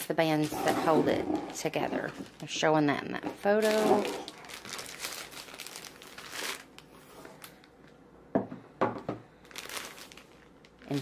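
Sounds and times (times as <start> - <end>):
packaging crinkling and rustling: 1.1 - 8.0, 9.3 - 11.0.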